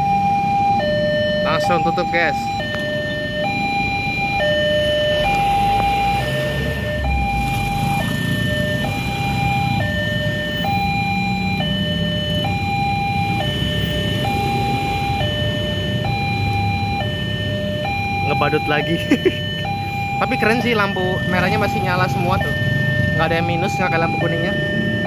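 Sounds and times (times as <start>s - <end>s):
low hum of traffic: 0.0s - 25.0s
two-tone level crossing alarm: 0.0s - 25.0s.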